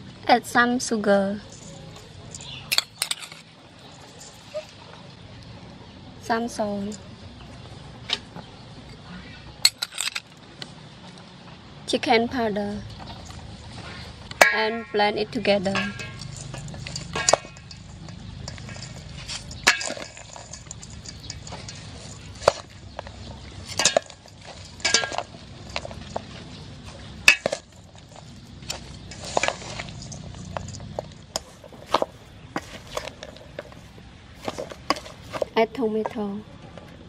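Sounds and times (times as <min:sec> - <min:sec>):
moist rustle of salad tossing: 0:16.2 - 0:35.6.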